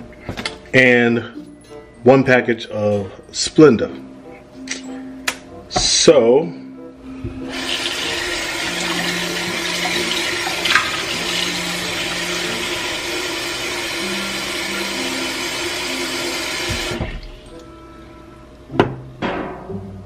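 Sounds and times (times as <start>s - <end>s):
tap water running into bowl: 7.5s - 17.6s.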